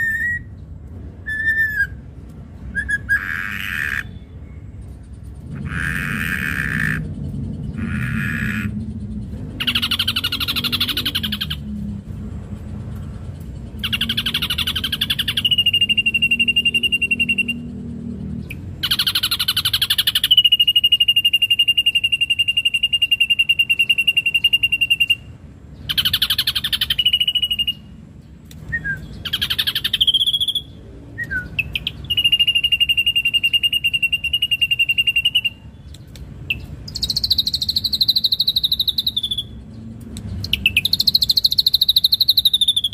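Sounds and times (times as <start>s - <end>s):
bird harsh rasping chatter: 2.8s - 11.7s, 12.6s - 17.8s, 18.5s - 27.9s, 29.2s - 30.8s, 31.5s - 39.6s.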